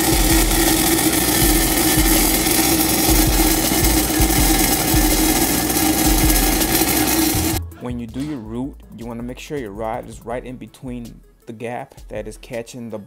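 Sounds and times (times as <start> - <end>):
steady hum: 0.0 - 7.6
welding arc crackling and sizzling: 0.0 - 7.6.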